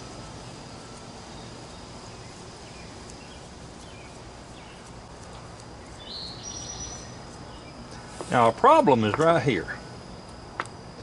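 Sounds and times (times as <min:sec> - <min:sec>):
faint bird chirps: 0:00.0 - 0:08.2
faint high steady tone: 0:00.0 - 0:11.0
steady low outdoor noise: 0:00.0 - 0:11.0.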